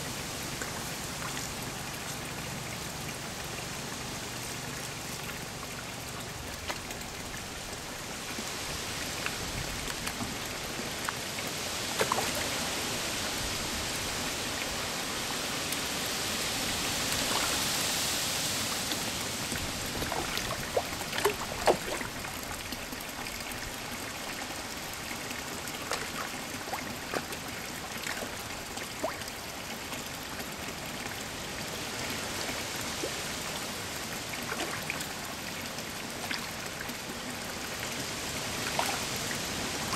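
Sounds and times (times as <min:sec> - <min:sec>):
splashing and churning water: 0:00.0 - 0:39.9
fish gulping pops and smacks: 0:19.5 - 0:22.3.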